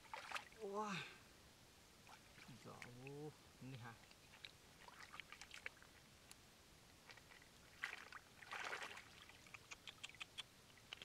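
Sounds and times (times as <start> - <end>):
hands splashing in muddy water: 7.1 - 9.6.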